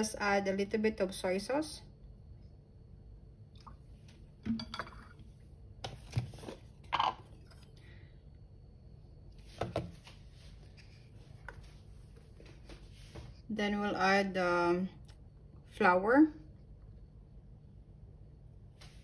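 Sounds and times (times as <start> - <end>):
bottles set down on stone countertop: 4.4 - 5.1, 6.1 - 7.3.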